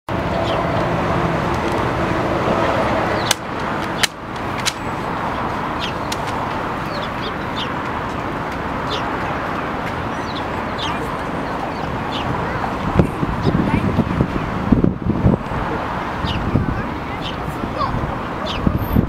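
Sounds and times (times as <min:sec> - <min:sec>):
sharp clicks: 0:03.2 - 0:04.8
faint murmur of voices: 0:08.9 - 0:14.8, 0:15.4 - 0:19.0.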